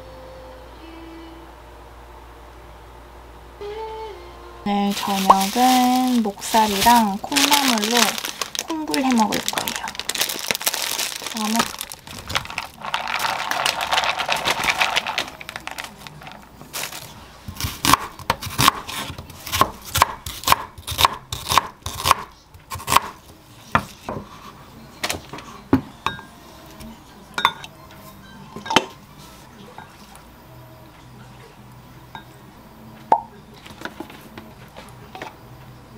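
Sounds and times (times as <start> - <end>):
plastic bag crinkling: 4.7 - 17.2
knife chopping on wooden board: 17.6 - 24.3.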